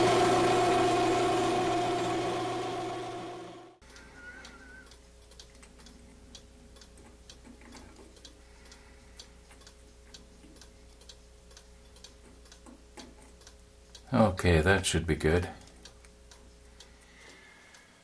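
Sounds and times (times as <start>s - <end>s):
faint regular ticking: 3.8s - 18.0s.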